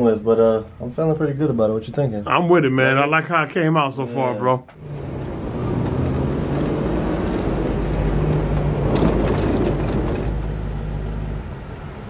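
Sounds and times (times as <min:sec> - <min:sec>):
vehicle engine humming: 0:04.8 - 0:12.0.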